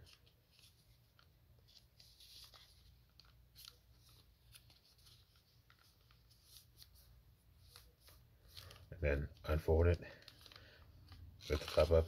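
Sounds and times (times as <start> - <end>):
paper rustling and crackling: 0.0 - 12.0.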